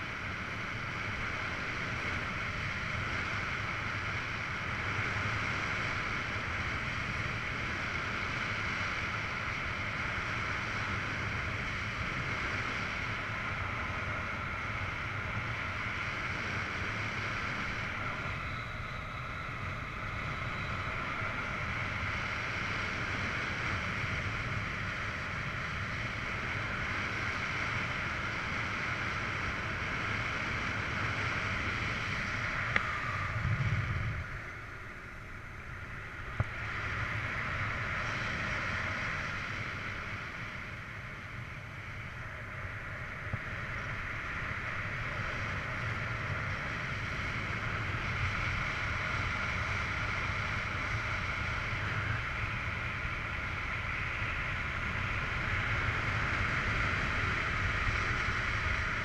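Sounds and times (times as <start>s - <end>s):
wind noise on microphone: 0.0s - 59.0s.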